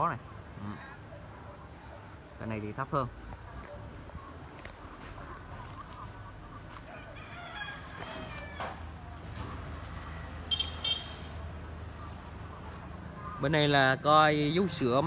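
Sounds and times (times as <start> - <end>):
rooster crowing: 6.9 - 9.0.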